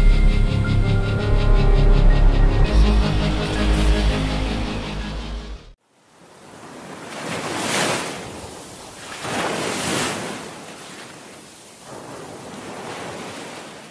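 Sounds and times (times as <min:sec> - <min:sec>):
sea waves washing in: 0:05.9 - 0:13.9.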